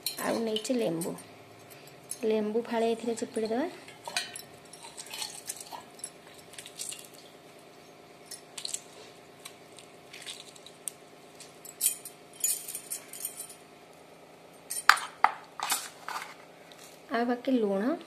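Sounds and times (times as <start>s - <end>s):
faint steady hum: 0.0s - 18.0s
lemon squeezing wet sounds: 8.5s - 11.0s.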